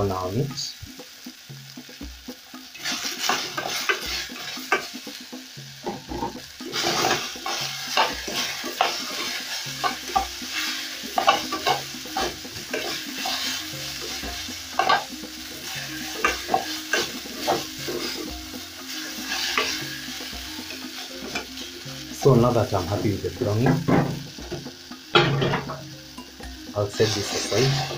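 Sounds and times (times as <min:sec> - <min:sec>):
meat sizzling in oil: 0:00.0 - 0:27.9
metal spatula scraping pot: 0:02.7 - 0:05.0, 0:05.8 - 0:18.3, 0:18.9 - 0:20.3, 0:26.9 - 0:27.9.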